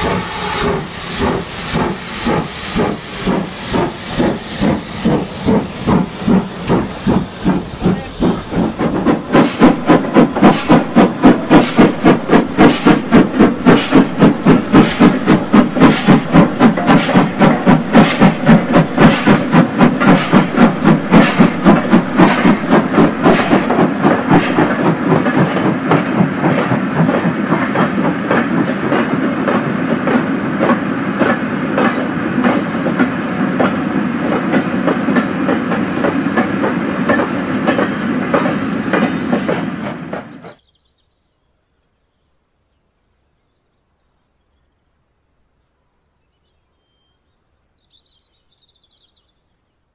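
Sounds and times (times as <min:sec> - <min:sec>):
steam hiss: 0:00.0 - 0:29.2
model steam locomotive chuffing: 0:00.0 - 0:40.6.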